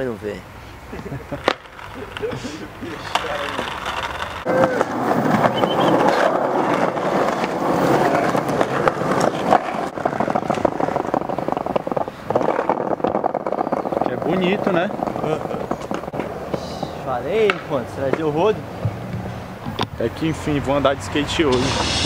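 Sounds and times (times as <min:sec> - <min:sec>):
skateboard wheels rolling on concrete: 0:00.0 - 0:22.0
skateboard clacks: 0:01.0 - 0:19.9.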